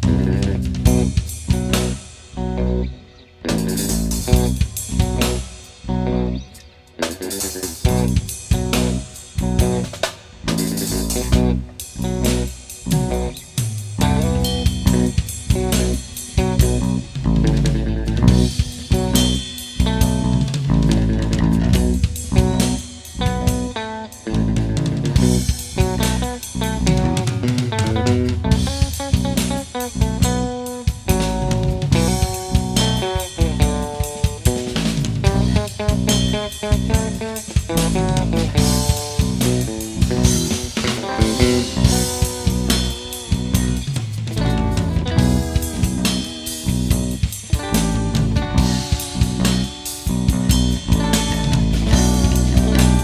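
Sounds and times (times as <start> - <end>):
drum kit steady beat: 0.0 - 2.5, 3.5 - 5.9, 7.0 - 53.0
bass guitar: 0.0 - 53.0
guitar: 0.0 - 53.0.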